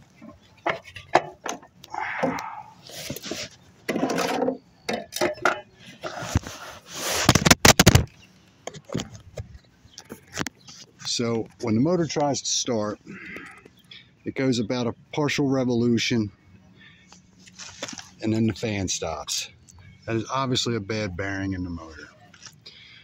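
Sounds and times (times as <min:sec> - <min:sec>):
fabric rubbing on microphone: 0:06.1 - 0:07.9.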